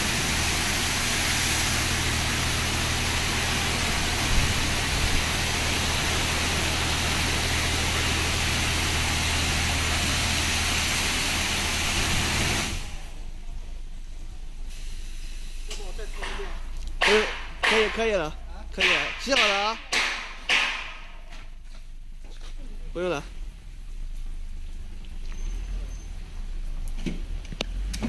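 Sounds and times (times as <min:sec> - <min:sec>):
high-pressure water spray hissing: 0:00.0 - 0:13.3, 0:14.6 - 0:18.0
low machine hum: 0:00.0 - 0:27.7.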